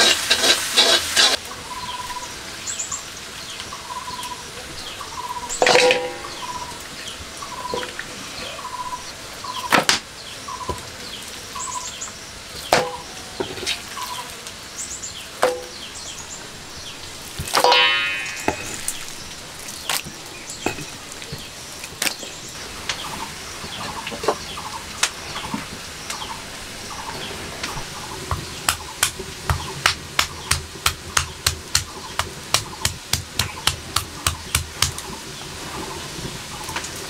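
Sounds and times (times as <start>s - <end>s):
bird call: 5.0s - 6.8s.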